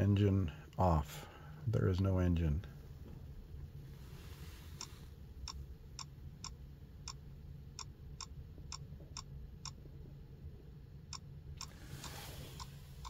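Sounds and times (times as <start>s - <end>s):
low steady hum: 0.0s - 13.0s
sharp electronic ticks: 5.4s - 7.2s, 7.8s - 9.9s.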